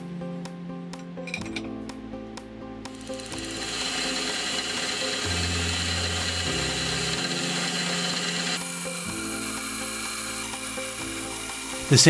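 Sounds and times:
soft background music: 0:00.0 - 0:12.0
milling machine spindle hiss: 0:02.9 - 0:12.0.

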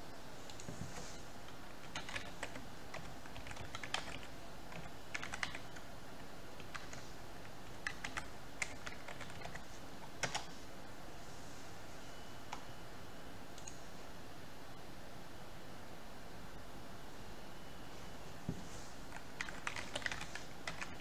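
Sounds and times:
typing on computer keyboard: 0:01.8 - 0:05.8, 0:06.6 - 0:07.0, 0:07.7 - 0:10.5, 0:19.1 - 0:21.0.

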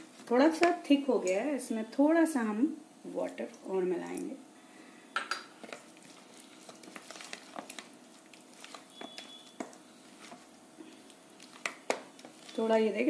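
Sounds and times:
spoon stirring thick batter: 0:05.6 - 0:13.0.

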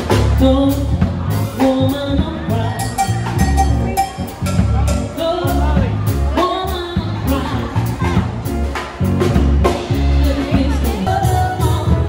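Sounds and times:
deep bass notes: 0:00.0 - 0:12.0
drum kit: 0:00.0 - 0:12.0
piano: 0:00.0 - 0:12.0
woman singing into a microphone: 0:00.1 - 0:03.0, 0:05.2 - 0:08.2, 0:10.0 - 0:12.0.

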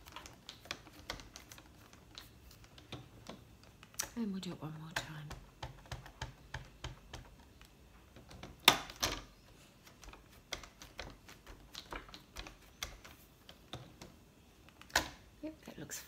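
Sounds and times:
ink pad tapping rubber stamp: 0:04.8 - 0:07.6.

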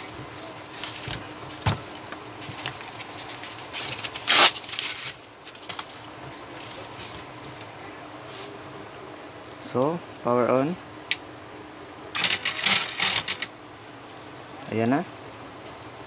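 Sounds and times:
paper rustle: 0:00.7 - 0:07.7.

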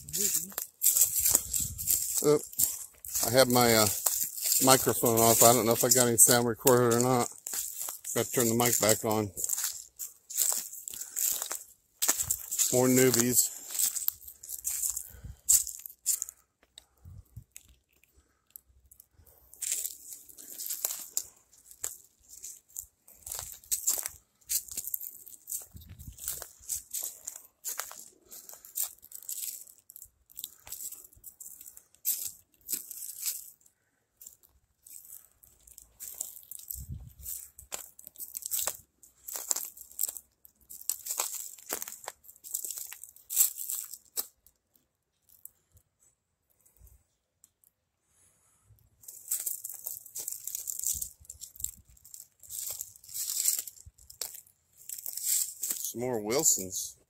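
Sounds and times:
footsteps on dry leaves: 0:00.0 - 0:16.3, 0:19.5 - 0:44.3, 0:49.0 - 0:56.8.

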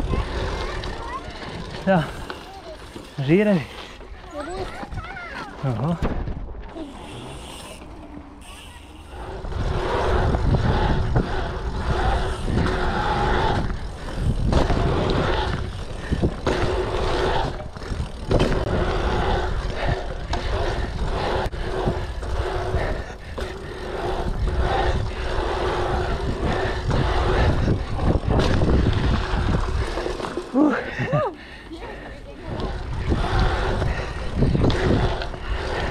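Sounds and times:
wind buffeting microphone: 0:00.0 - 0:02.3, 0:09.0 - 0:31.2, 0:32.2 - 0:35.9
bike tyres rolling on asphalt: 0:00.0 - 0:35.9
bike knocks and rattles: 0:09.7 - 0:30.6.

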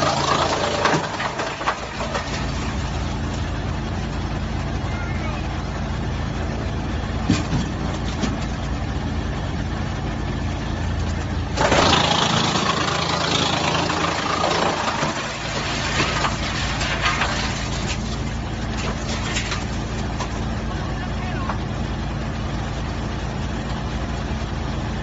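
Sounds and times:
log crunching in chipper: 0:00.0 - 0:03.9, 0:10.6 - 0:22.0
wood chipper humming: 0:00.0 - 0:25.0.

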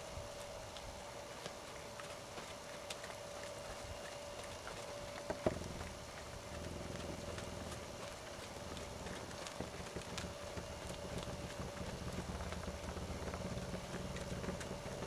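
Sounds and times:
horse hoofbeats on dirt: 0:00.0 - 0:15.0
wind rumble on microphone: 0:05.4 - 0:15.0.

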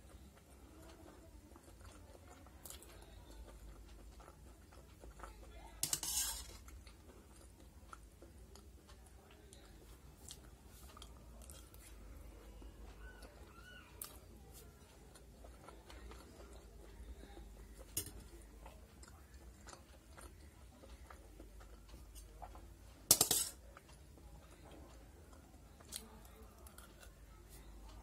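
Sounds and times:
spoon clinking on steel plate: 0:05.8 - 0:06.6, 0:23.1 - 0:23.6.

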